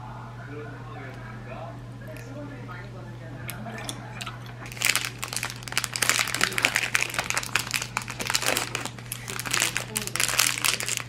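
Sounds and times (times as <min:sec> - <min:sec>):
wrapper crinkling: 0:04.2 - 0:11.0.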